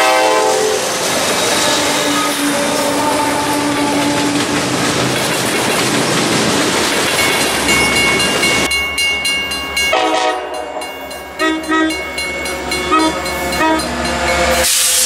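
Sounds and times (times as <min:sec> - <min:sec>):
train horn short blasts: 0:00.0 - 0:00.9, 0:01.5 - 0:04.4, 0:09.9 - 0:10.8, 0:11.4 - 0:12.1, 0:12.7 - 0:14.0
freight train rumbling on rails: 0:00.0 - 0:15.0.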